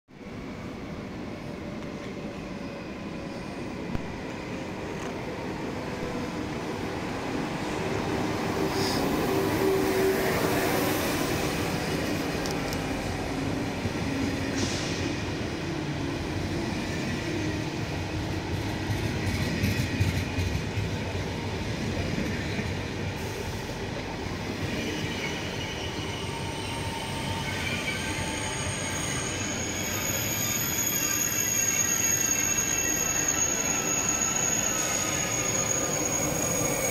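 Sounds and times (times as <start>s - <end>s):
high squeal of train brakes: 8.5s - 11.8s, 14.2s - 15.4s, 23.1s - 23.9s, 24.6s - 36.9s.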